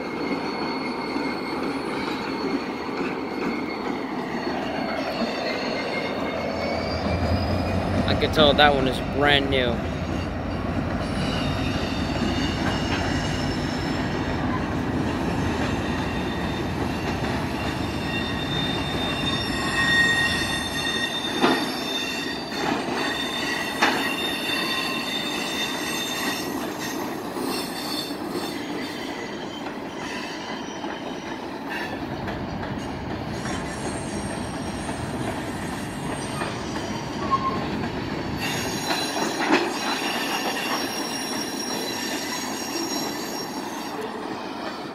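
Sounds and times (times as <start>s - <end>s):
train wheels squealing: 0.0s - 44.9s
diesel locomotive rumble: 6.2s - 17.8s.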